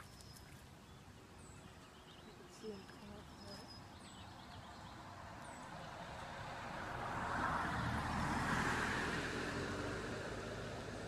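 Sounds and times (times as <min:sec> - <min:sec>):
vehicle passing by: 0:04.5 - 0:11.0.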